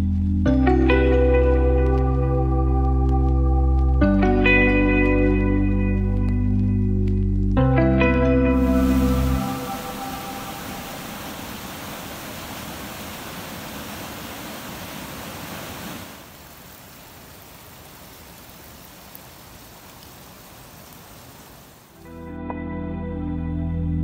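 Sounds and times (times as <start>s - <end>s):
stream rushing over boulders: 8.5s - 22.0s.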